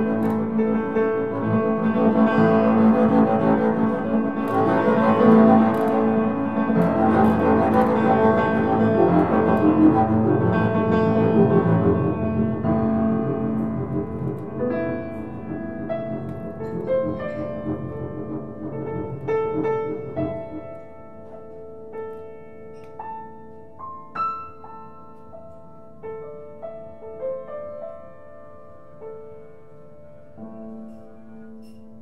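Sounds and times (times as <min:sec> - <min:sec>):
double bass: 0:00.0 - 0:21.9
upright piano: 0:00.0 - 0:32.0.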